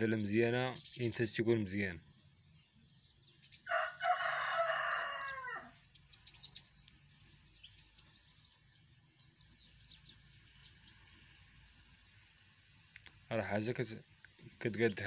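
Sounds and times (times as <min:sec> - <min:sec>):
small birds chirping: 0:00.0 - 0:15.0
rooster crowing: 0:03.7 - 0:05.8.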